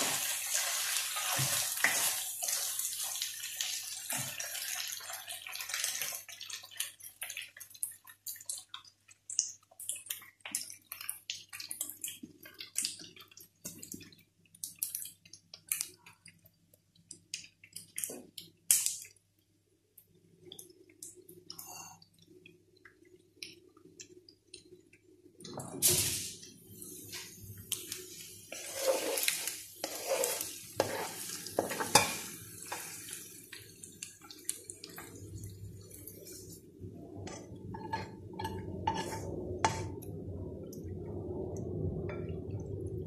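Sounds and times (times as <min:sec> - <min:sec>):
spatula stirring: 0:00.0 - 0:03.3, 0:28.1 - 0:33.3, 0:37.2 - 0:40.0
food sizzling in a frying pan: 0:00.0 - 0:06.6, 0:25.8 - 0:36.6.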